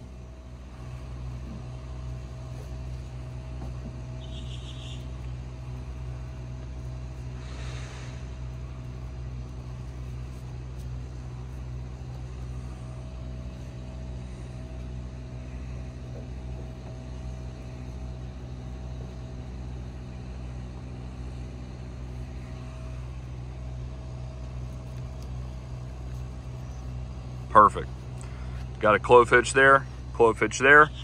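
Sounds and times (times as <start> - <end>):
low machine hum: 0.0 - 31.0
faint high whine: 3.8 - 21.1.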